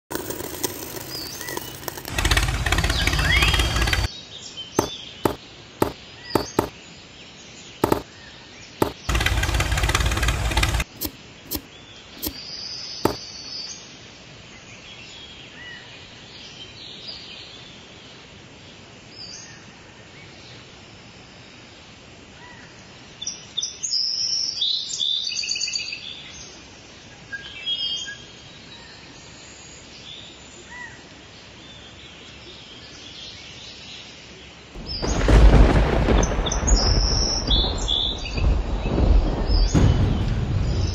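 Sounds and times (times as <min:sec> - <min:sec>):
outdoor background noise: 0:00.0 - 0:40.9
sharp clicks: 0:00.1 - 0:04.1, 0:04.8 - 0:06.7, 0:07.8 - 0:08.0, 0:08.8 - 0:12.4
loud bursts of noise: 0:01.1 - 0:04.1, 0:07.8 - 0:08.0, 0:08.8 - 0:11.6, 0:34.8 - 0:37.6
small birds chirping: 0:01.1 - 0:07.0.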